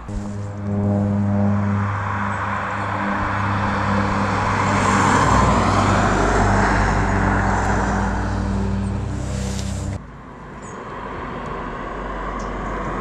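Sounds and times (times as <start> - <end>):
car driving past: 0.0 - 10.0.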